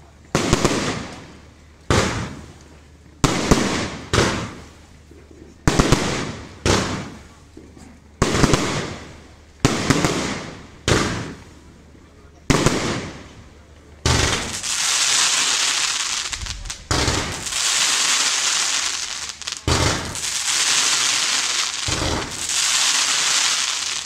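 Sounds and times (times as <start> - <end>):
firework shells bursting: 14.1 - 24.0.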